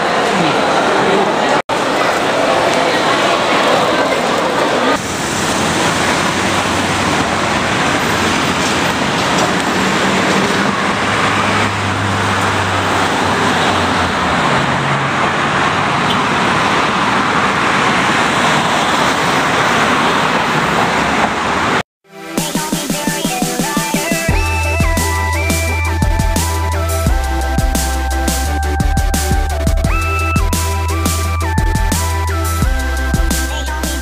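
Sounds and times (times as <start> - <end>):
city road traffic: 0.0 - 22.4, 23.1 - 34.0
heavy vehicle engine hum: 4.6 - 21.8.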